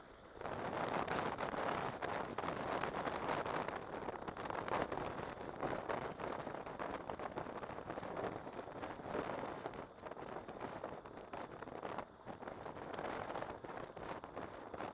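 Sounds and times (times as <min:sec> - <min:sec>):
wind rushing over microphone: 0:00.0 - 0:14.9.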